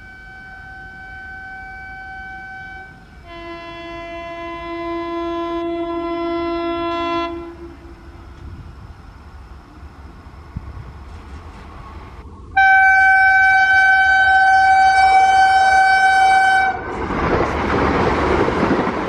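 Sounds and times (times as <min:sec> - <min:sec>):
train horn blasts: 0:00.0 - 0:08.6, 0:12.5 - 0:17.0
train rumbling: 0:00.0 - 0:19.0.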